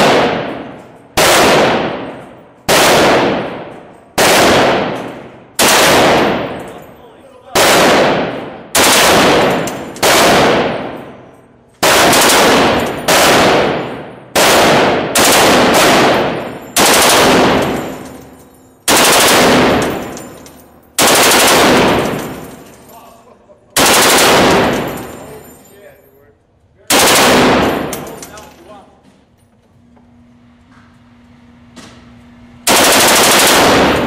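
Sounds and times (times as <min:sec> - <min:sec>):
machine gun bursts echoing: 0:00.0 - 0:06.8, 0:07.5 - 0:22.7, 0:23.8 - 0:25.2, 0:26.9 - 0:28.4, 0:32.6 - 0:34.0.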